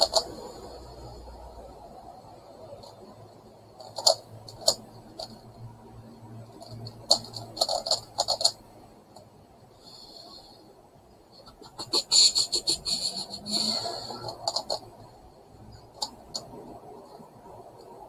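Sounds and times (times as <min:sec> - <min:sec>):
plastic puzzle clicking as turned: 0:03.8 - 0:05.4, 0:06.6 - 0:08.6, 0:14.3 - 0:14.8.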